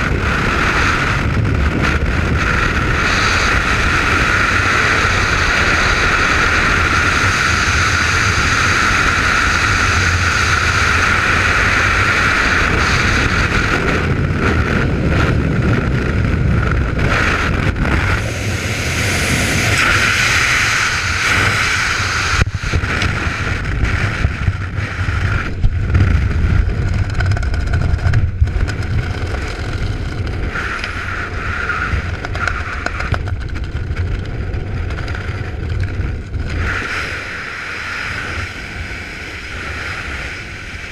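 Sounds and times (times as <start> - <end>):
wind roaring over microphone: 0.0 - 40.9.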